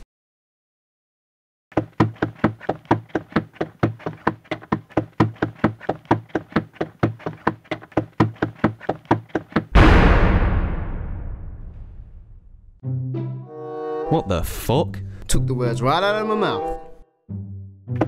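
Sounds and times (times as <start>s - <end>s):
rapid knocking footsteps: 1.7s - 9.7s
loud booming hit: 9.7s - 12.8s.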